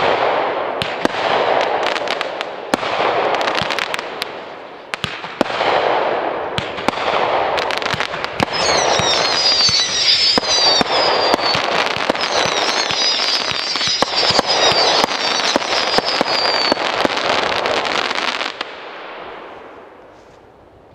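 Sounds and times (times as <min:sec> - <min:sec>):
fireworks crackling: 0:00.0 - 0:20.4
fireworks whistling: 0:07.6 - 0:18.6.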